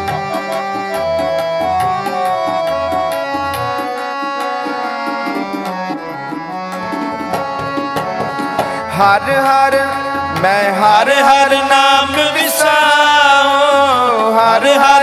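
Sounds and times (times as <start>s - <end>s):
fast tabla strokes: 0.0s - 14.1s
harmonium reed melody: 0.0s - 15.0s.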